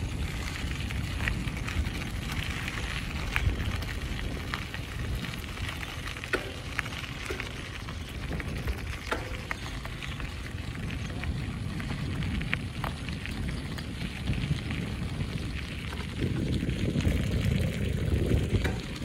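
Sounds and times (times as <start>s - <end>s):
light ticks and crackles: 0.0s - 19.0s
wind buffeting microphone: 0.0s - 19.0s.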